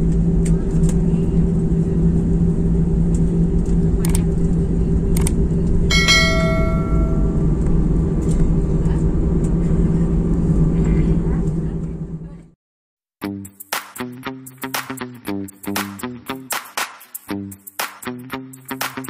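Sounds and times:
jet engine rumble in cabin: 0.0s - 12.6s
bell-like ding: 5.9s - 7.6s.

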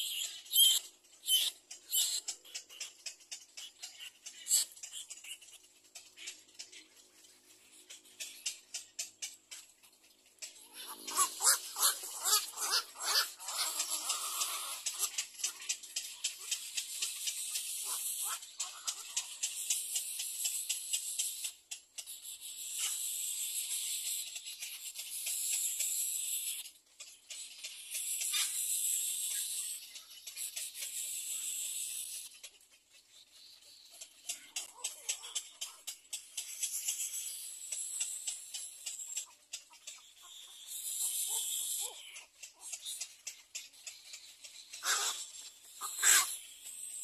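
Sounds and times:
chicks chattering calls: 0.0s - 47.0s
rasping bird call: 10.7s - 15.3s, 44.8s - 46.5s
steady clicking: 13.2s - 22.3s.

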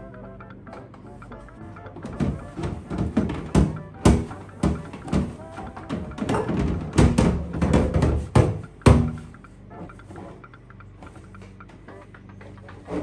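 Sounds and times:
plastic bin knocking on sink: 2.0s - 9.2s.

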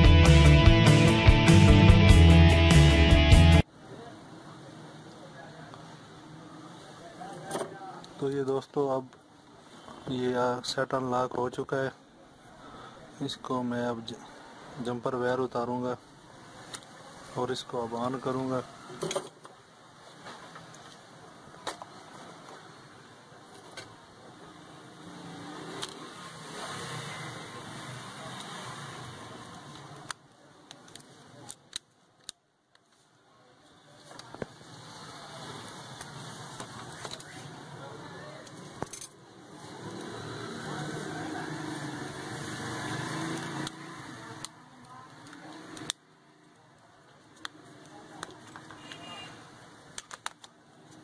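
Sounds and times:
background murmur: 16.5s - 51.0s
sharp plastic clicks: 30.0s - 32.8s, 49.9s - 50.6s
plastic phone parts clicking: 49.9s - 50.6s.

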